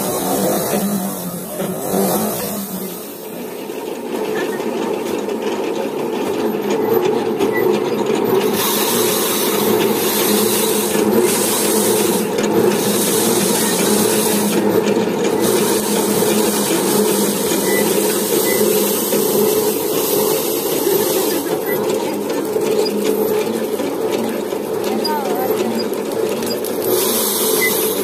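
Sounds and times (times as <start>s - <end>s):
thresher drum spinning: 0.0s - 28.0s
harsh rasping of rice stalks: 8.4s - 14.7s.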